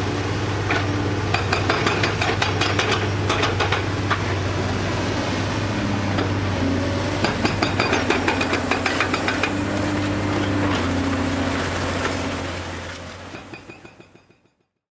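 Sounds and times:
excavator diesel engines: 0:00.0 - 0:14.2.

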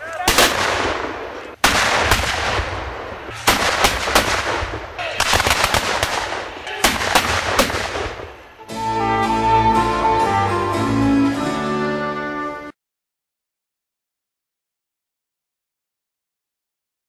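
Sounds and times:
gunshots echoing: 0:00.1 - 0:08.6.

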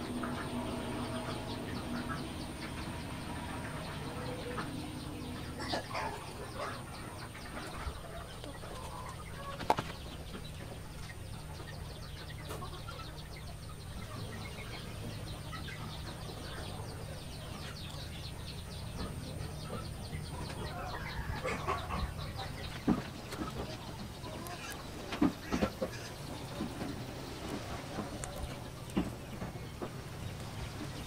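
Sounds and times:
chickens clucking: 0:00.0 - 0:31.0
steady low rumble: 0:00.0 - 0:31.0.

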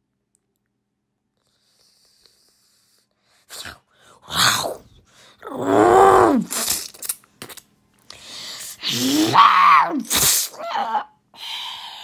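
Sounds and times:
monster cries: 0:05.4 - 0:06.6, 0:08.8 - 0:11.2.

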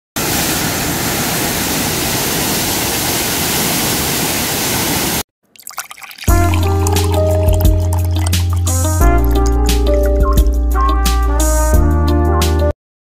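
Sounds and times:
waterfall roaring: 0:00.2 - 0:05.2.

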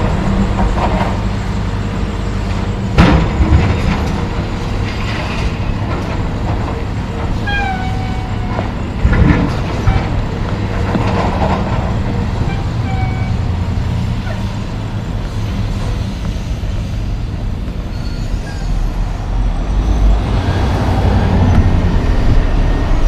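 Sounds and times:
diesel engines running: 0:00.0 - 0:23.0
high metallic squeal: 0:07.4 - 0:08.6, 0:12.4 - 0:13.5, 0:17.8 - 0:20.2.

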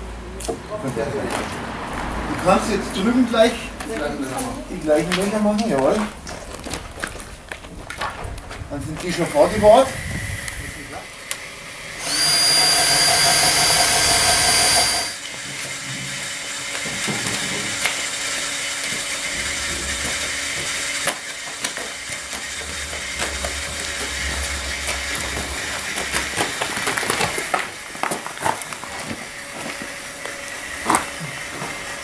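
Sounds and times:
cordless drill whining: 0:09.2 - 0:27.5.

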